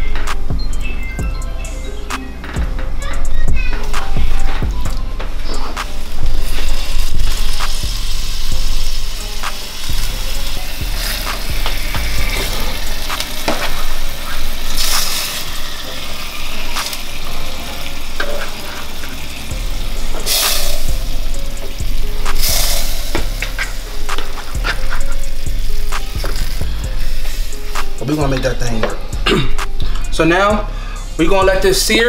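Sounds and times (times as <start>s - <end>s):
background music: 0.0s - 32.0s
meat sizzling in hot oil: 5.6s - 28.0s.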